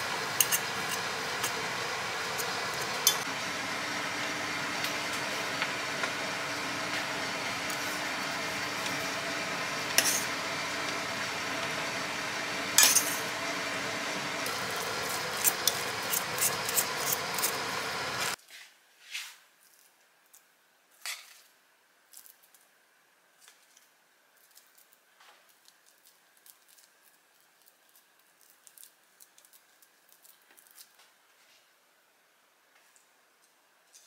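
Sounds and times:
fork mashing potatoes in pot: 0.0s - 3.3s, 14.5s - 18.4s
kitchen background noise: 0.0s - 31.9s.

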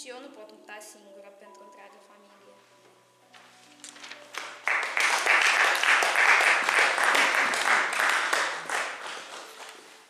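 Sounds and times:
audience applauding: 4.4s - 9.8s.

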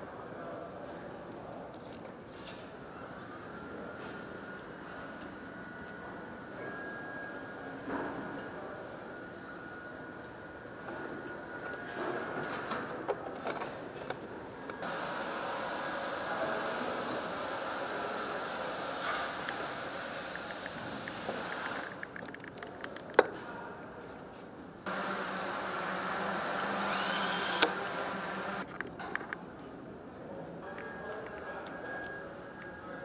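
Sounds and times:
steady hiss: 14.8s - 22.0s, 24.9s - 28.6s
power screwdriver whining: 24.9s - 28.6s
screwdriver clutch click: 26.8s - 28.6s.

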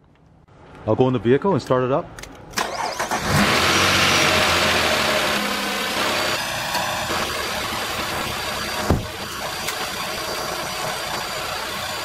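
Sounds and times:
sharp thump: 8.8s - 9.2s.

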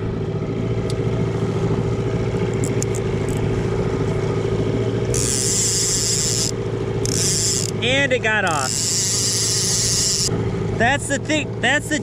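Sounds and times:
outboard motor running: 0.0s - 12.0s
high buzzing hiss: 5.2s - 6.5s.

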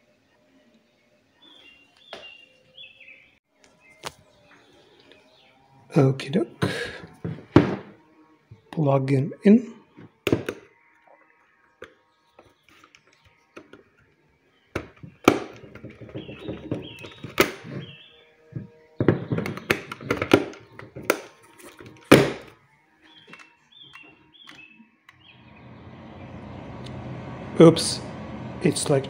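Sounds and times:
plug knocks and clicks: 18.6s - 21.3s.

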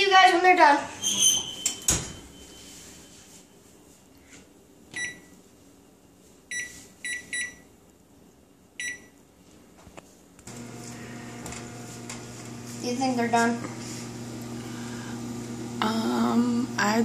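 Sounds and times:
short high keypad beeps: 5.0s - 5.3s, 8.8s - 9.1s.

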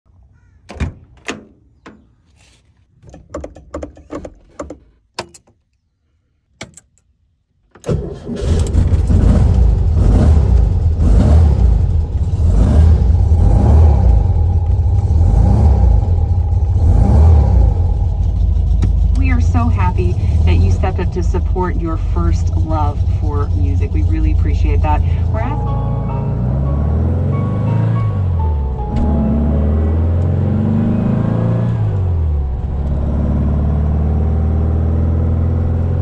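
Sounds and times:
car engine starting and running: 6.5s - 36.0s
car door latch clicks: 6.6s - 7.0s.

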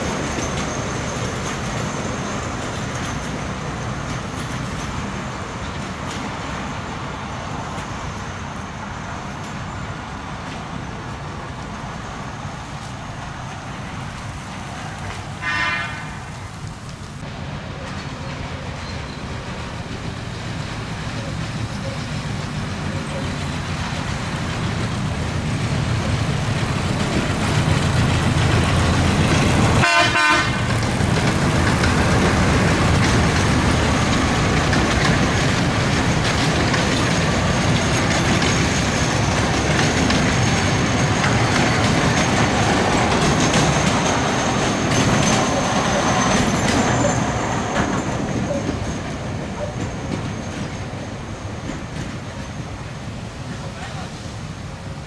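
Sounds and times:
diesel locomotive engine running: 0.0s - 55.0s
wheel and rail noise: 0.0s - 55.0s
locomotive horn toot: 15.4s - 16.2s, 29.8s - 30.7s.

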